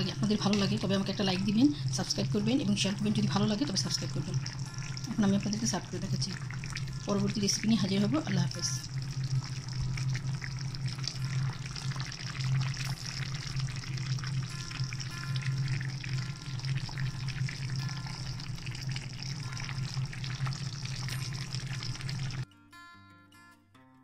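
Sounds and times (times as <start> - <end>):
curry bubbling in a frying pan: 0.0 - 22.4
steady low hum: 0.0 - 22.4.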